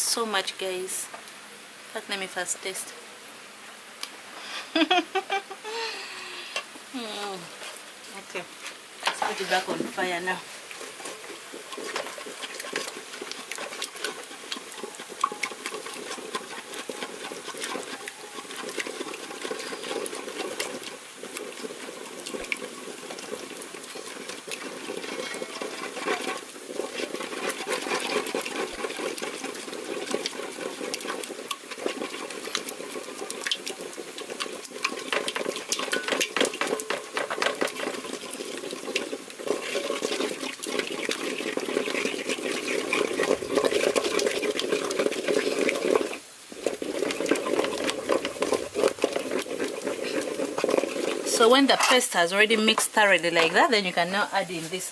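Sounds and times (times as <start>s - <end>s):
wooden stick stirring soup in pot: 6.6s - 54.9s.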